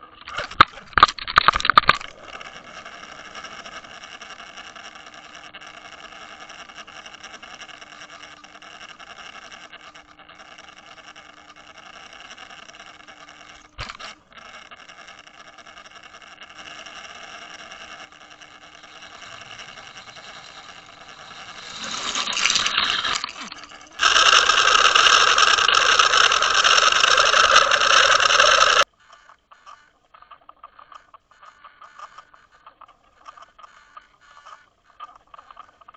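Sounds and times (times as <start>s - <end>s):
boat motor drone underwater: 0.0s - 35.9s.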